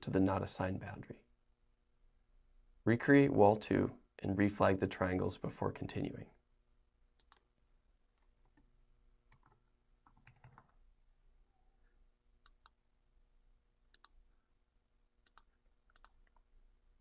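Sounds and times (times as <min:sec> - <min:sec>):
mouse clicks: 0:07.2 - 0:07.5, 0:12.4 - 0:12.8, 0:13.9 - 0:14.2, 0:15.2 - 0:16.5.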